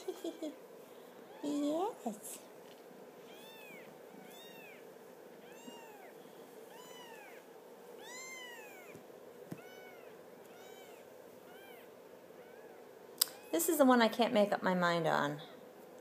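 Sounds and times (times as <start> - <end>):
kittens mewing: 0.0 - 0.6, 3.2 - 13.6.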